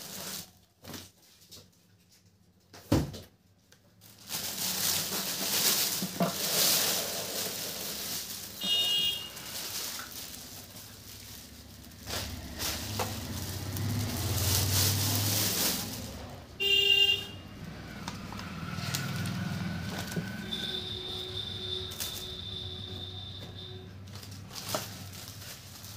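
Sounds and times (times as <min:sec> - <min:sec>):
plastic packaging crinkling: 0:00.0 - 0:01.2, 0:03.8 - 0:23.4, 0:24.0 - 0:25.9
paper rustling: 0:04.0 - 0:16.4, 0:24.1 - 0:25.9
horn-like toots: 0:20.3 - 0:24.0.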